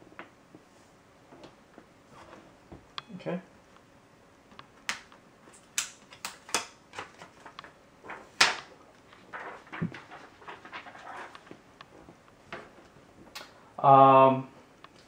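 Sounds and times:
soft rustling: 7.1s - 13.3s.

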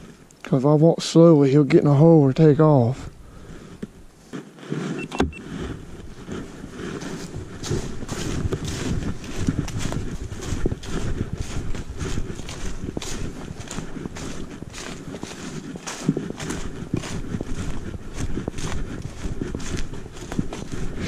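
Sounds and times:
footsteps crunching on dry leaves: 4.3s - 21.0s.

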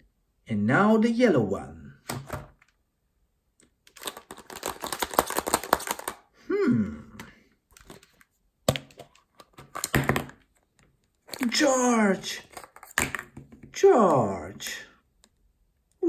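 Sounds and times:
plastic egg clicks: 3.6s - 6.2s.

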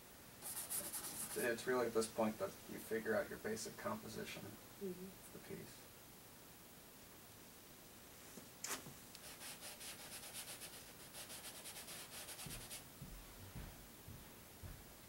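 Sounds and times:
paint brush scrubbing canvas: 0.4s - 1.6s, 8.7s - 12.8s.

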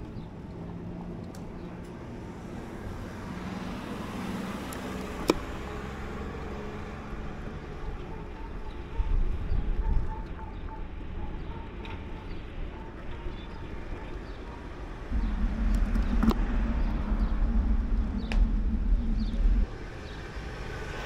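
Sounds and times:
car approaching: 0.0s - 21.0s
low rumble: 15.0s - 21.0s.

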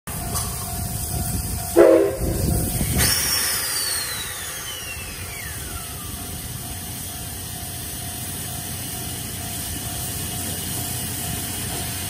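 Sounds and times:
steam hissing: 0.5s - 12.0s
steam whistle blast: 1.8s - 5.7s.

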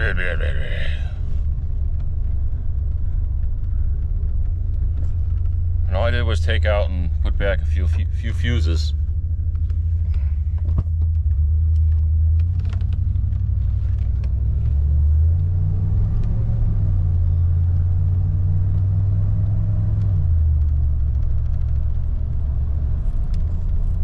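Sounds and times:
road rumble: 0.0s - 24.0s
van engine drone: 0.0s - 24.0s.

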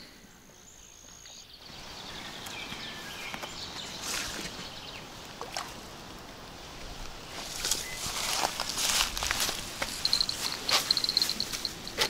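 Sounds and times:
faint insects chirping: 0.0s - 12.0s
rustling and crackling: 7.3s - 12.0s.

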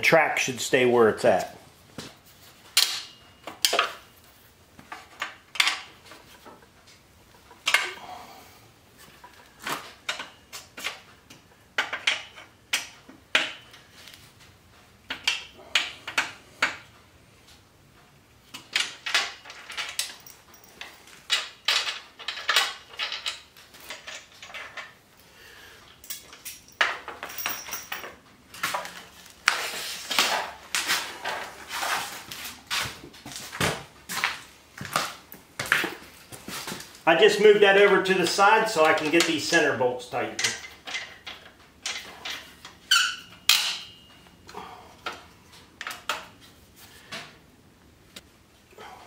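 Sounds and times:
metal clanks and knocks: 18.5s - 25.0s, 40.3s - 44.2s.

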